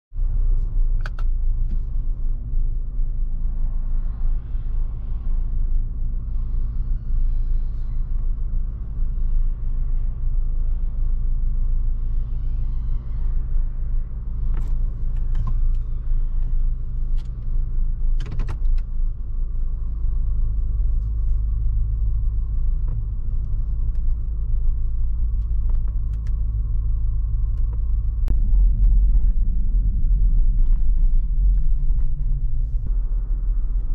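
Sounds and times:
engine and road rumble: 0:00.0 - 0:33.9
sharp clicks and rattles: 0:17.1 - 0:19.1.

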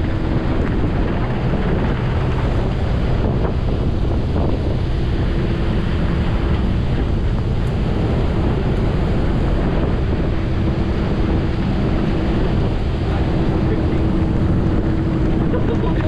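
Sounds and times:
boat engine humming: 0:00.0 - 0:16.0
wind buffeting microphone: 0:00.0 - 0:16.0.

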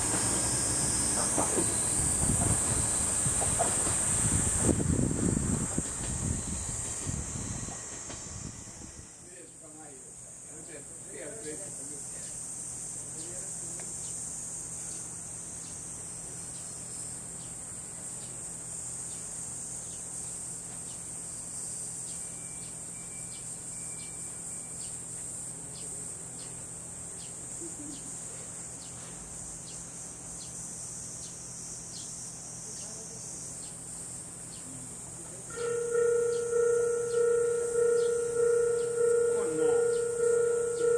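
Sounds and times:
insect chorus drone: 0:00.0 - 0:40.9
faint low hum: 0:34.5 - 0:40.9.

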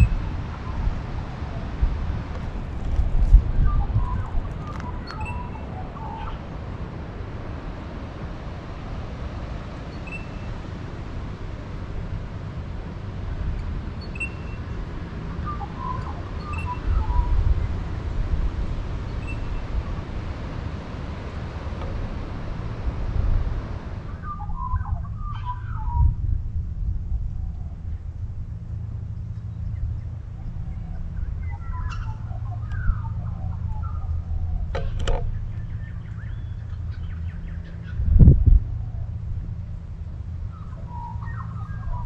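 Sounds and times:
low rumble and hiss: 0:00.0 - 0:42.0
bird chirps: 0:03.7 - 0:06.4, 0:09.9 - 0:10.6, 0:14.0 - 0:14.8, 0:15.4 - 0:17.5, 0:19.1 - 0:19.8, 0:24.1 - 0:26.1, 0:30.7 - 0:38.2, 0:40.5 - 0:42.0.

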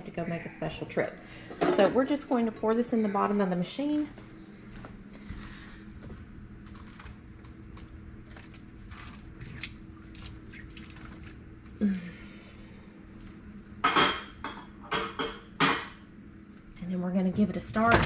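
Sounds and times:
liquid splashing and dripping: 0:07.6 - 0:11.8.

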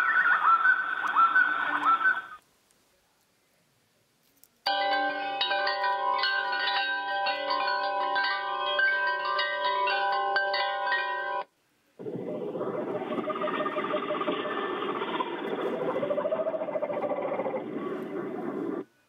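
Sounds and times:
electronic wind chime tones: 0:04.7 - 0:11.5.

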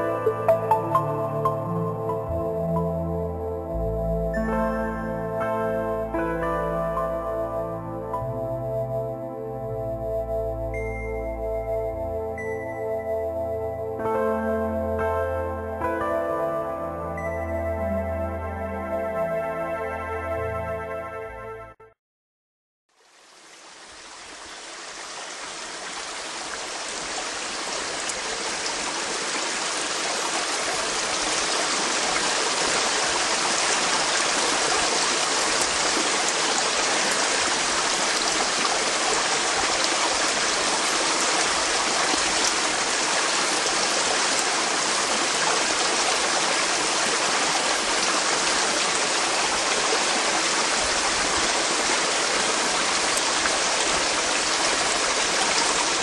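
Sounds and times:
stream water rushing over rocks: 0:23.0 - 0:56.0.

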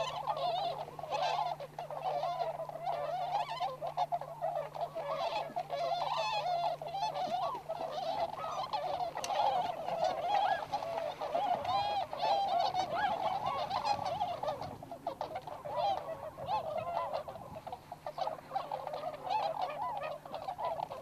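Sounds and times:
swans calling: 0:00.0 - 0:21.0.

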